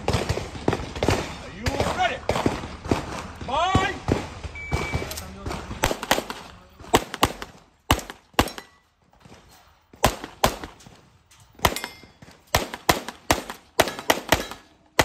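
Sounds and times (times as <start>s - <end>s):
handgun shots: 11.6s - 15.0s.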